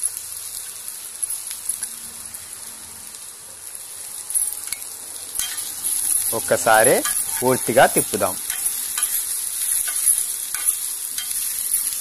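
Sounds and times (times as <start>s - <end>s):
oil sizzling in a pan: 0.0s - 12.0s.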